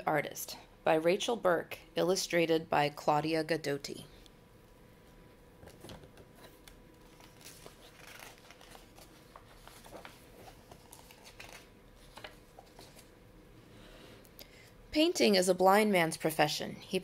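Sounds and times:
book pages turning: 5.6 - 13.2.

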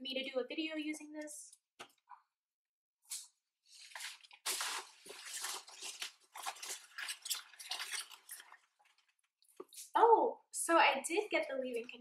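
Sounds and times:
packaging rustling and crinkling: 3.7 - 9.8.

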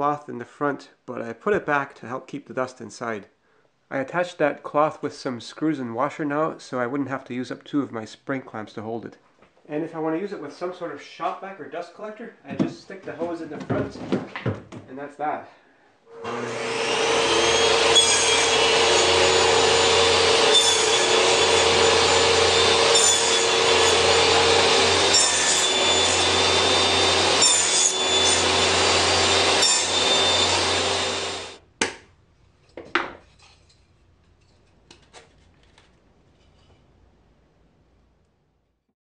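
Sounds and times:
table saw cutting wood: 16.1 - 31.6.

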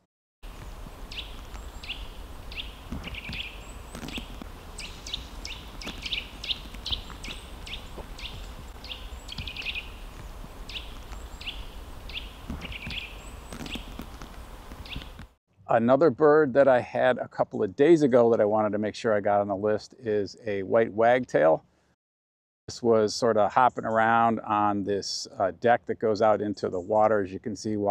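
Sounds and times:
nuthatch calling: 0.5 - 14.1, 14.7 - 15.2.

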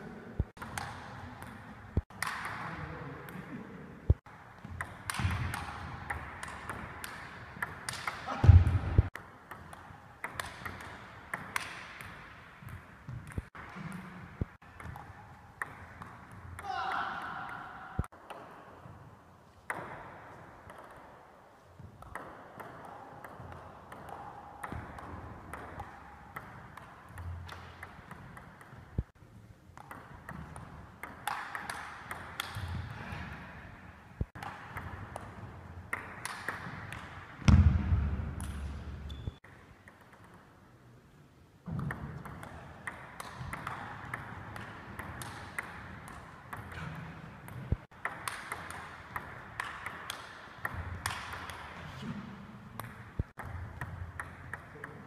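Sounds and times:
table tennis ball clicking: 47.4 - 51.8, 52.8 - 55.0.

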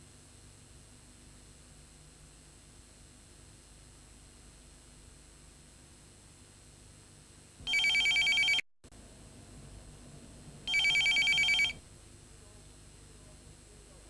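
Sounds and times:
desk telephone ringing: 7.7 - 8.6, 10.7 - 11.8.

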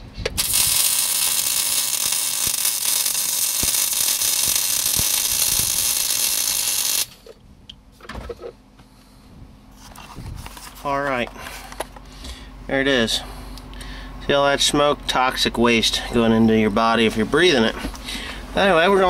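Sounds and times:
welding arc sizzling: 0.4 - 7.3.

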